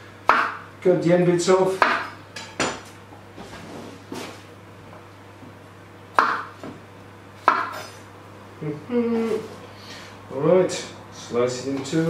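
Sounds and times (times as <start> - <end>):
knife chopping on wooden board: 0.3 - 0.6, 1.8 - 2.9, 6.2 - 6.8, 7.4 - 8.0.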